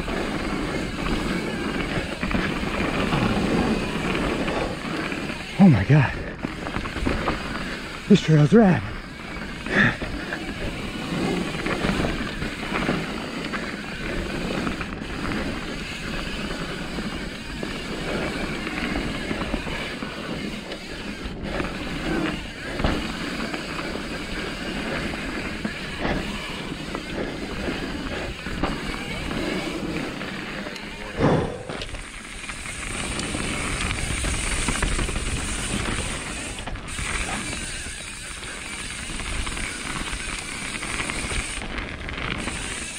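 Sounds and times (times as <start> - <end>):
bike rattling over bumps: 0.0 - 42.9
wind and tyre rush: 0.0 - 42.9.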